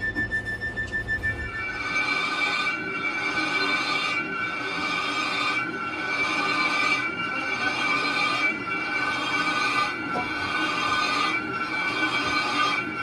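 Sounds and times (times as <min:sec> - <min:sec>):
lathe tool squealing on metal drum: 0:00.0 - 0:13.0.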